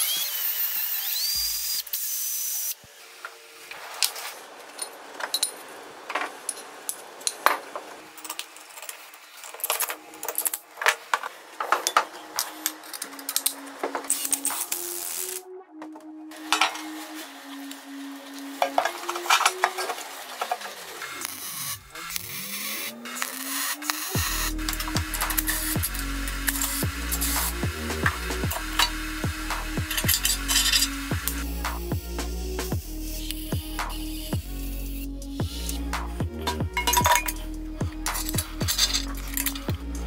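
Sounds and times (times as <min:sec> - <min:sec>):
electric drill boring into steel: 0:00.0 - 0:05.7, 0:16.4 - 0:35.8.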